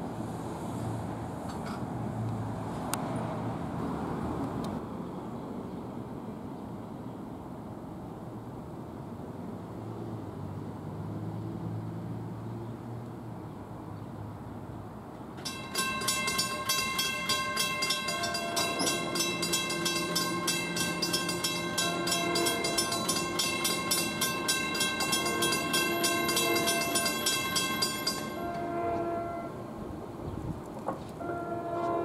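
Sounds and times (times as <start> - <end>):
railroad crossing bell ringing: 15.4 - 29.6.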